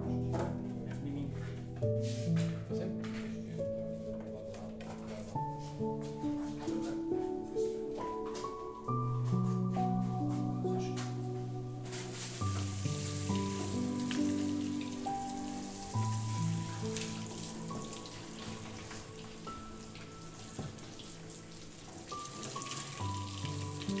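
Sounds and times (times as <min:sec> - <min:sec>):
slow held music notes: 0:00.0 - 0:24.0
faint hiss: 0:11.7 - 0:24.0.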